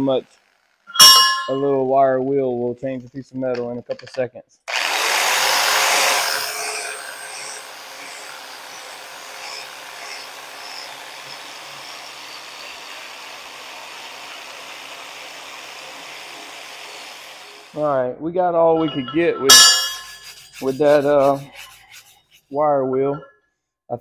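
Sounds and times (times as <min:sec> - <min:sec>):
wire wheel grinding on steel: 0:00.2 - 0:01.7, 0:05.6 - 0:17.8, 0:19.0 - 0:22.5
grinder motor whine: 0:04.7 - 0:15.8.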